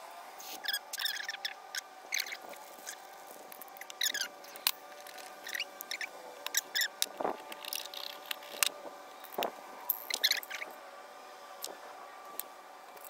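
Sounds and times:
high squeaky chirps: 0:00.5 - 0:03.0, 0:03.7 - 0:04.6, 0:05.2 - 0:07.0, 0:10.1 - 0:10.7
small metal parts clicking: 0:02.2 - 0:10.6.

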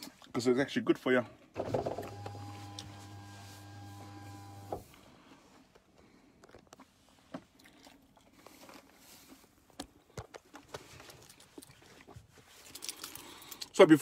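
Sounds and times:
person chewing crunchy salad: 0:07.5 - 0:13.7.

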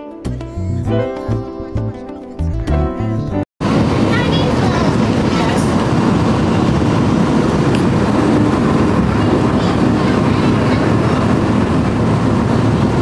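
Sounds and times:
monorail train rumbling: 0:03.6 - 0:13.0.

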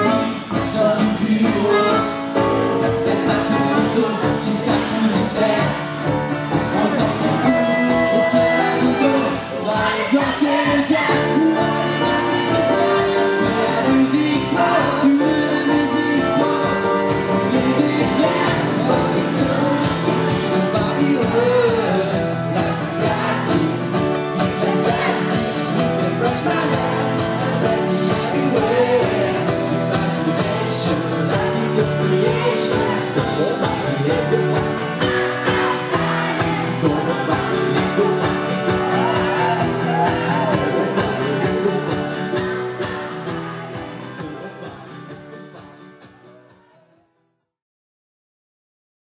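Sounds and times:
pop band playing: 0:00.0 - 0:46.8
person singing: 0:00.0 - 0:47.1.

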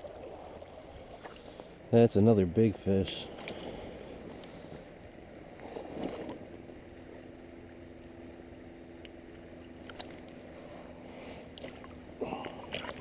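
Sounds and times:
flowing creek water: 0:00.0 - 0:05.0, 0:08.9 - 0:13.0.

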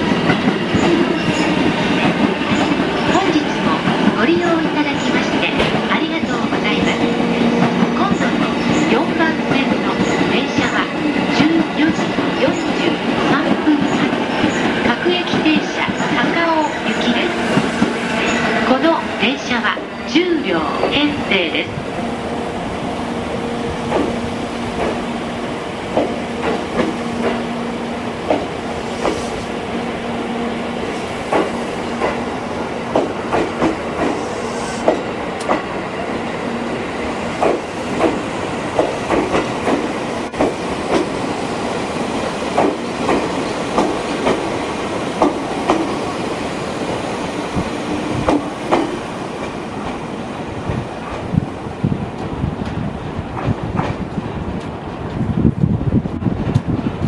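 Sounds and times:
train wheels clacking over rail joints: 0:00.0 - 0:16.0, 0:23.9 - 0:25.1, 0:25.9 - 0:27.5, 0:31.2 - 0:32.2, 0:32.9 - 0:35.8, 0:37.4 - 0:41.2, 0:42.5 - 0:46.1, 0:47.6 - 0:50.0.

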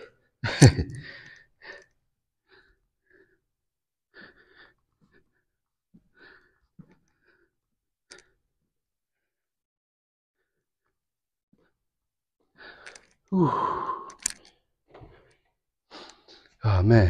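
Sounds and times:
man breathing with strain: 0:01.0 - 0:03.4, 0:04.1 - 0:08.4, 0:12.5 - 0:16.6.

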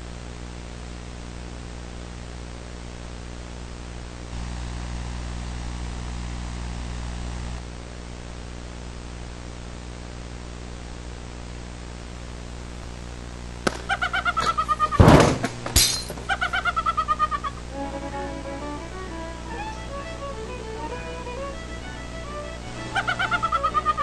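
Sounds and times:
steady hiss and hum: 0:00.0 - 0:24.0
loud crashes: 0:14.9 - 0:16.3.

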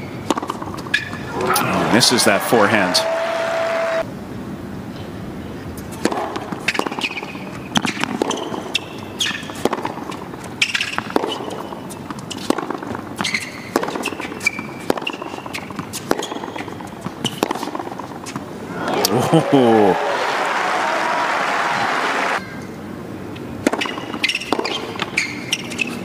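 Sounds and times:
shoes squeaking on court: 0:00.0 - 0:03.1, 0:05.8 - 0:18.6, 0:23.6 - 0:26.0
racket striking ball: 0:00.2 - 0:02.1, 0:06.0 - 0:08.6, 0:09.4 - 0:18.4, 0:23.6 - 0:25.7.

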